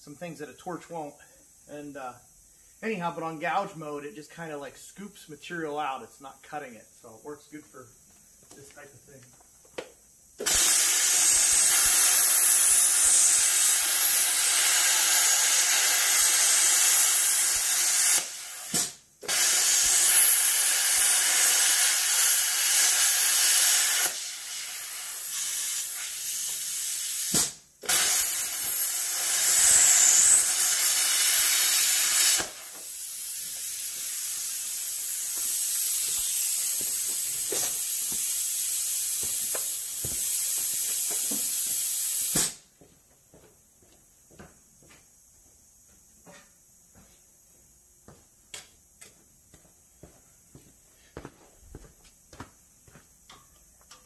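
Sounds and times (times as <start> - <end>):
plasma cutter hissing: 10.4 - 42.6.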